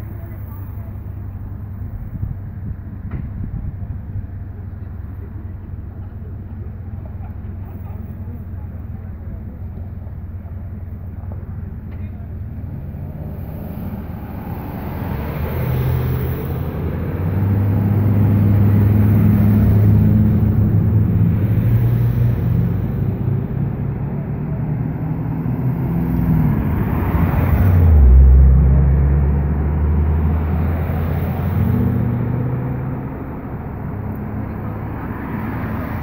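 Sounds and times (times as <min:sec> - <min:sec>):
vehicle engines running: 0:00.0 - 0:36.0.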